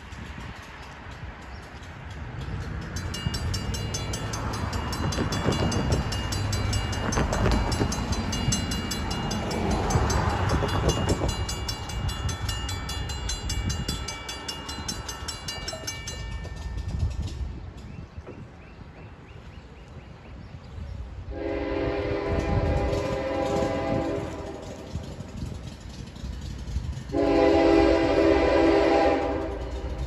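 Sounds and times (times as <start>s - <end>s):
crossing bell ringing: 0.4s - 17.9s.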